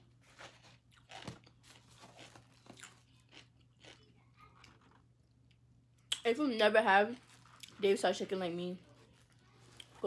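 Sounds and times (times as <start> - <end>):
person chewing crispy chicken: 0.0 - 5.6.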